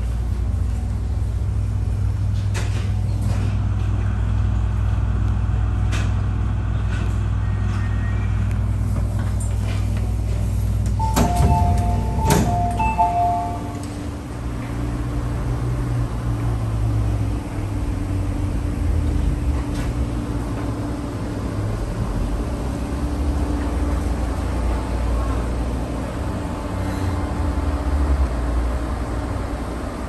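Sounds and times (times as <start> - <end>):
train low rumble and hum: 0.0 - 30.0
two-tone door chime beeping: 11.0 - 14.0.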